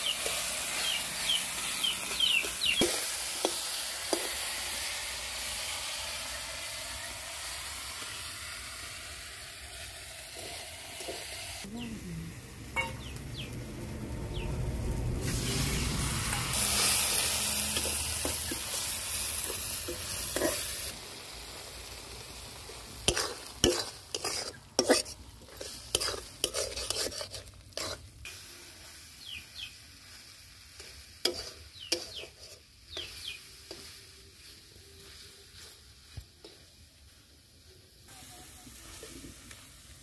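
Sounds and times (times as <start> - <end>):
curry sizzling in a pan: 0.0 - 11.7, 12.5 - 40.0
metal spatula scraping a pan: 10.0 - 11.6, 15.3 - 20.9, 23.0 - 28.1, 30.1 - 36.6.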